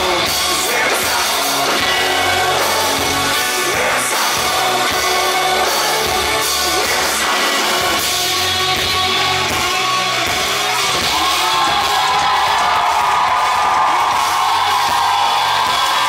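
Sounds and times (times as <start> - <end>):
person singing: 0.0 - 12.0
drums: 0.0 - 16.0
guitar: 0.0 - 16.0.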